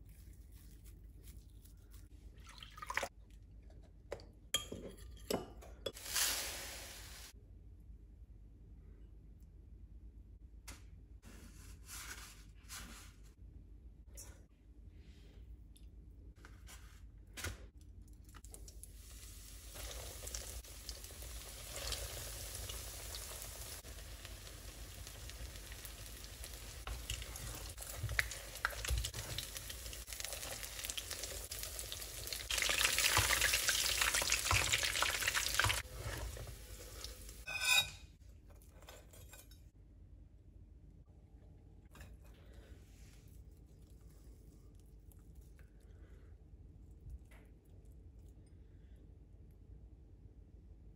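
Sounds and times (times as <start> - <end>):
patties sizzling in hot oil: 5.9 - 7.4, 18.6 - 37.8.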